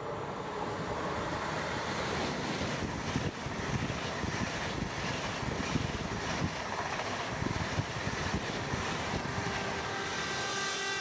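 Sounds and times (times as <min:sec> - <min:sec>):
high-speed train passing: 0:00.0 - 0:11.0
wind buffeting microphone: 0:01.7 - 0:10.4.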